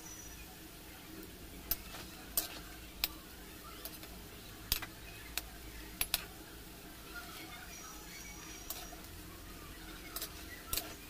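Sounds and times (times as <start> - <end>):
food sizzling in deep-frying oil: 0.0 - 11.0
metal spoon scraping pan: 1.7 - 2.7, 8.5 - 9.1, 10.0 - 11.0.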